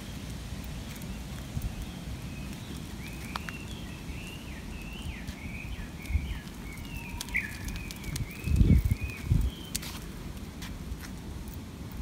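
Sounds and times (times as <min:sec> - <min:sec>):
bird chirping rapidly: 0:01.8 - 0:09.7.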